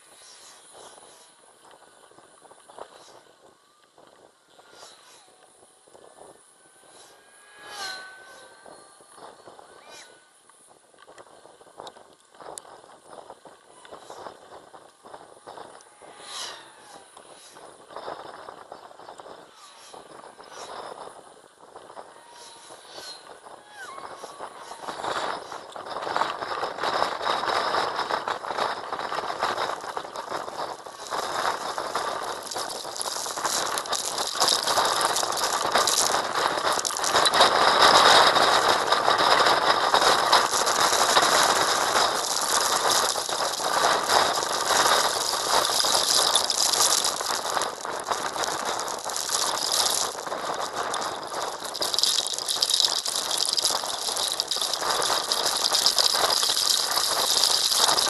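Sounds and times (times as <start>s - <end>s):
heavy rain on glass: 29.7s - 58.0s.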